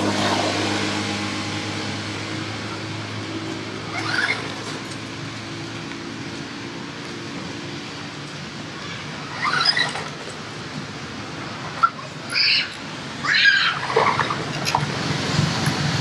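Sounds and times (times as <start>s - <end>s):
monkey squealing: 3.9s - 4.6s, 8.9s - 10.2s, 11.7s - 14.4s.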